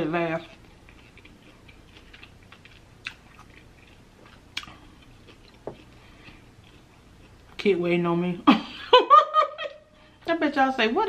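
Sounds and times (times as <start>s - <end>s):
wet chewing sounds: 0.1s - 7.7s.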